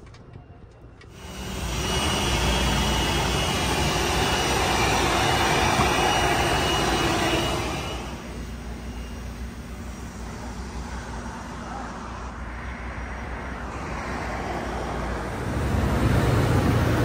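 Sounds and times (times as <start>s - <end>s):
vacuum cleaner rushing air: 1.2s - 9.3s.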